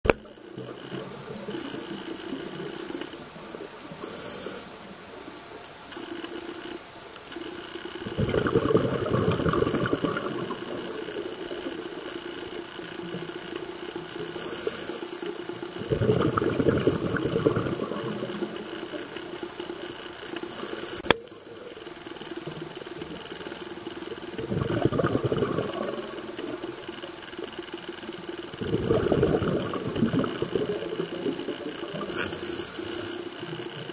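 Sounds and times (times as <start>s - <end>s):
faint steady hum: 0.1s - 33.9s
regulator inhale hiss: 3.8s - 5.0s, 14.2s - 15.4s, 20.4s - 21.9s, 31.9s - 33.8s
exhaust bubbles rushing: 8.0s - 11.2s, 15.8s - 18.9s, 24.3s - 27.0s, 28.4s - 32.2s.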